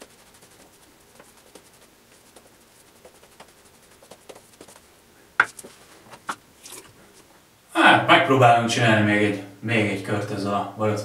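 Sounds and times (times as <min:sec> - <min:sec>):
shaving brush strokes: 0:00.0 - 0:07.2.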